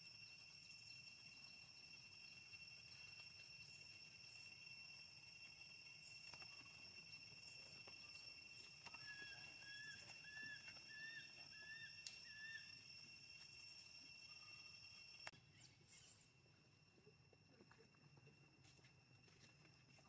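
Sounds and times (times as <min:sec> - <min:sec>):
high drone of insects: 0:00.0 - 0:20.0.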